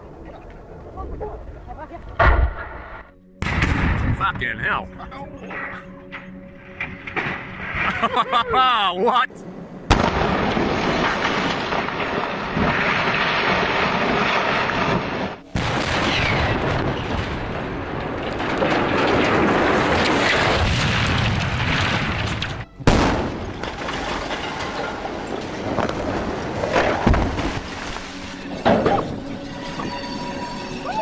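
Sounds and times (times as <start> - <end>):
demolition charges exploding: 2.2 - 4.7, 6.5 - 8.2, 9.9 - 30.0
sharp bangs: 2.2 - 4.9, 9.9 - 27.7
structures collapsing: 6.2 - 8.7, 9.9 - 31.0.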